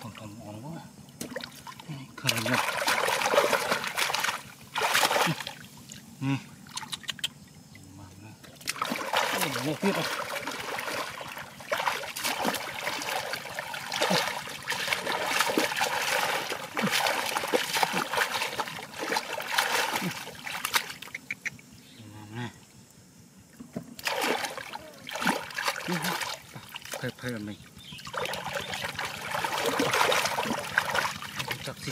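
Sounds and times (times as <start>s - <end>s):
hands splashing in muddy water: 1.2s - 5.7s, 8.5s - 21.1s, 24.0s - 27.3s, 28.0s - 31.9s.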